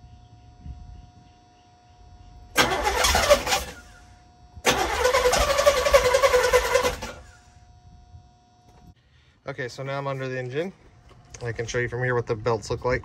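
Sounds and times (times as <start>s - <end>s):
starter cranking engine: 2.6s - 4.0s, 4.6s - 7.4s.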